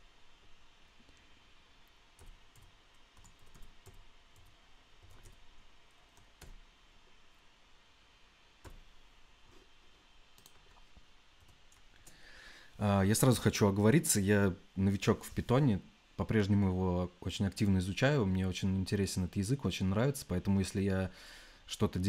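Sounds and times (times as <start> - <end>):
typing on computer keyboard: 2.2 - 5.5.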